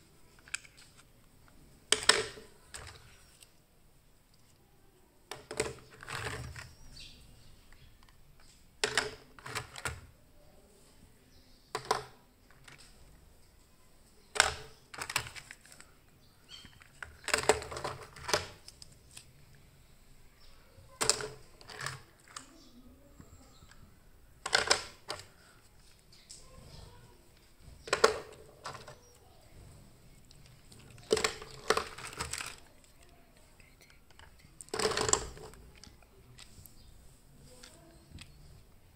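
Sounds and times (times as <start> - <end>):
plastic toy cars clattering: 0.3 - 3.5, 5.2 - 10.2, 11.7 - 13.2, 14.1 - 19.4, 20.4 - 33.1, 33.8 - 36.8.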